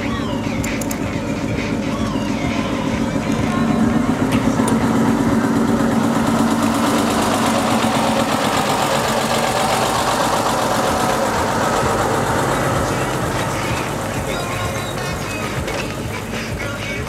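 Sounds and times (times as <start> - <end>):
bus diesel engine running: 0.0 - 17.0.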